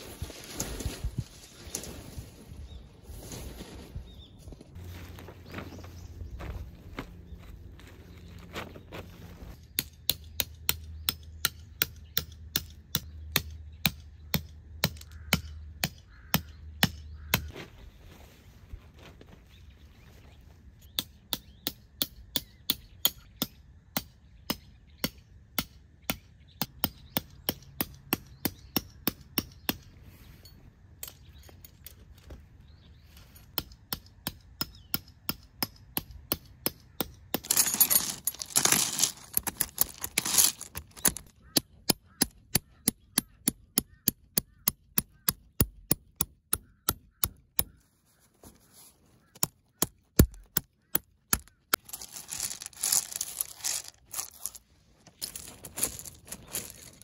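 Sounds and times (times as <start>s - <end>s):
rustling or crumpling: 0.0s - 5.9s, 37.4s - 41.3s, 51.8s - 57.0s.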